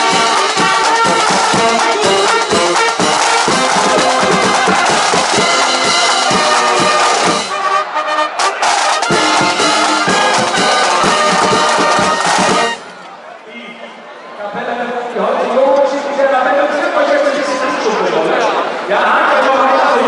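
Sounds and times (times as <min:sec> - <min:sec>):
drum strikes: 0:00.0 - 0:12.9
brass band playing: 0:00.0 - 0:13.0.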